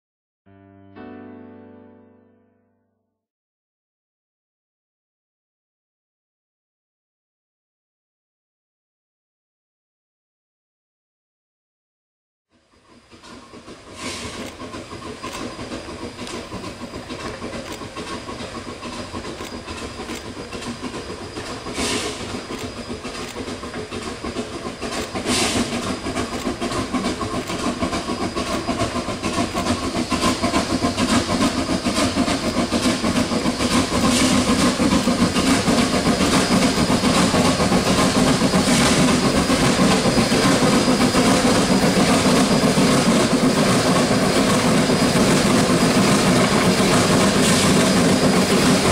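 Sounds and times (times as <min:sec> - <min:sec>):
steam locomotive exhaust chuffing: 0:12.5 - 0:48.9.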